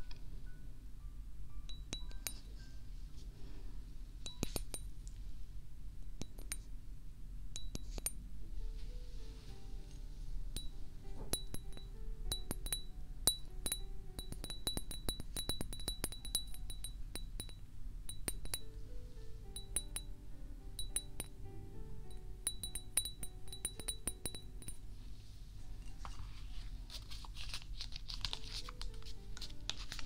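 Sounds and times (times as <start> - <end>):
small glass object clinking: 4.3 - 4.9, 10.6 - 18.7, 19.6 - 20.1, 22.5 - 24.8.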